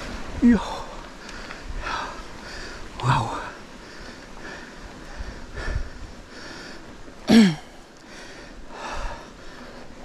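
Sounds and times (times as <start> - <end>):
man panting heavily: 1.2 - 10.0.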